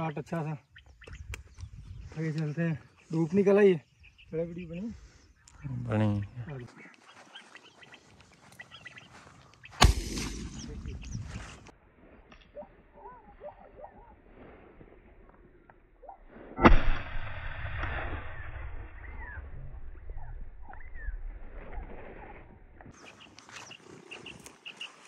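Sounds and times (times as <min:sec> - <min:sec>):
small birds chirping: 0:00.0 - 0:11.7, 0:20.0 - 0:21.4, 0:22.8 - 0:25.0
shotgun shot with echo: 0:09.8 - 0:11.2, 0:16.6 - 0:18.4.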